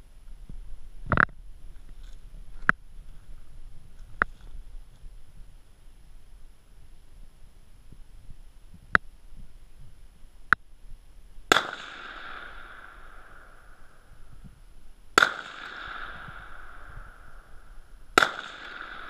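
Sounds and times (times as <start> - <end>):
shotgun shots with echo: 11.5 - 14.0, 15.2 - 19.0.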